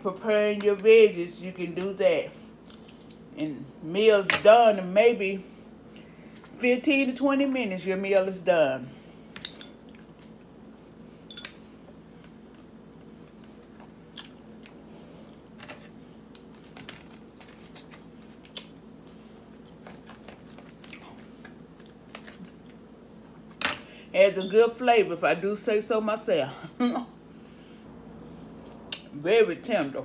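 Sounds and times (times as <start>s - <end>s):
low room hum: 0.0s - 30.0s
person chewing: 13.6s - 15.5s, 19.5s - 22.6s.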